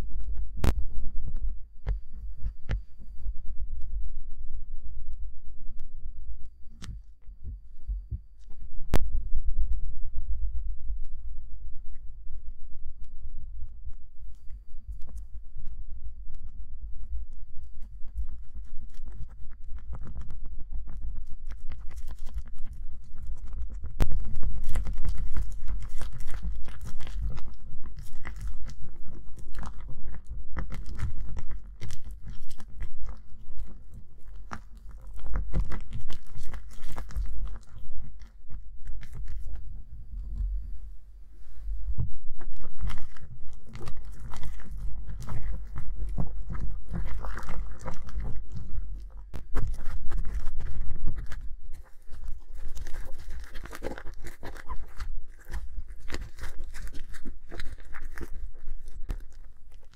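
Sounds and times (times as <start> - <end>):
slime kneaded by hand: 13.9 - 40.8, 41.4 - 59.9
slime squelching: 17.8 - 40.8, 41.8 - 59.9.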